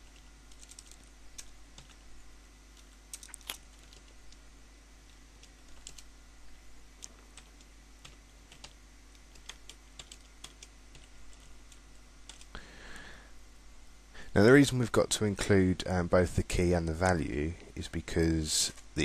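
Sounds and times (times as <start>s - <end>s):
computer keyboard typing: 0.0s - 2.0s, 2.7s - 4.4s, 5.4s - 6.1s, 7.0s - 12.6s.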